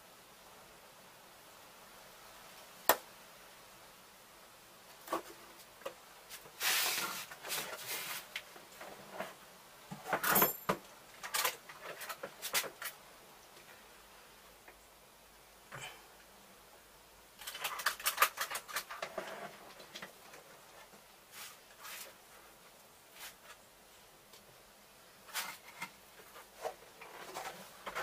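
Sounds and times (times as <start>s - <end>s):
knocks scrapes and rustles: 6.3s - 13.0s, 17.4s - 22.4s, 25.2s - 28.0s.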